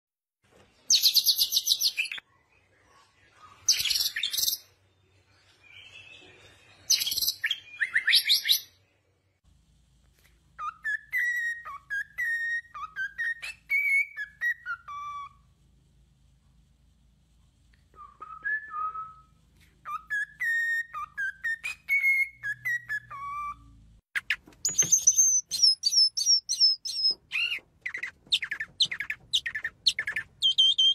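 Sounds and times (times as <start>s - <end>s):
cockatiel whistling a tune: 10.6s - 15.4s, 17.9s - 30.9s
bird singing high trilled phrases: 24.2s - 30.9s.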